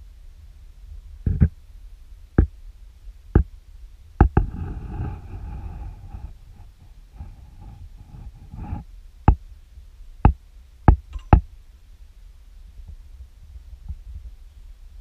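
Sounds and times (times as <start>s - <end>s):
low rumbling handling noise: 4.2s - 9.4s.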